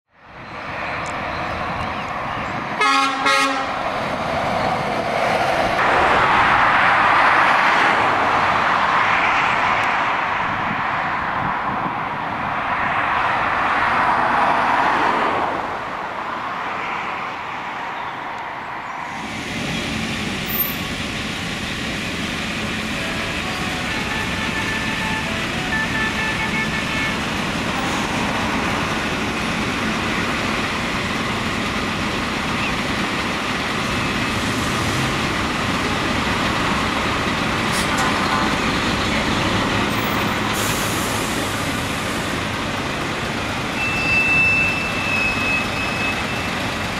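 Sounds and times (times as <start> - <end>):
trucks driving past close by: 0.2 - 46.9
distant lorry rumble: 18.8 - 46.9.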